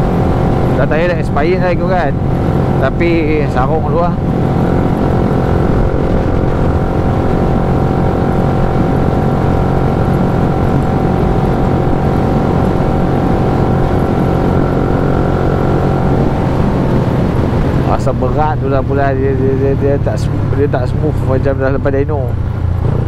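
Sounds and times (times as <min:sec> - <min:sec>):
motorcycle engine cruising: 0:00.0 - 0:23.0
road and wind rumble: 0:00.0 - 0:23.0.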